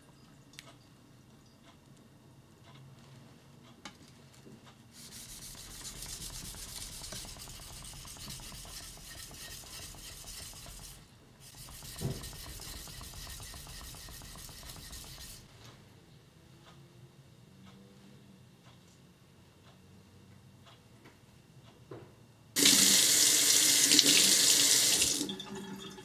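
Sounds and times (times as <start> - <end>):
knife rubbing on sharpening stone: 5.0 - 15.4
knock: 11.8 - 13.2.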